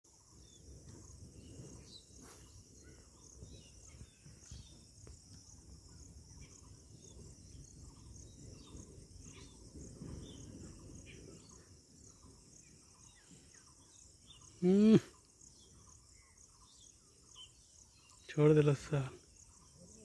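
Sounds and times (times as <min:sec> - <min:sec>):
low rumble of wind: 0:00.1 - 0:14.6
bird chirps: 0:00.1 - 0:20.0
insects trilling: 0:00.1 - 0:20.0.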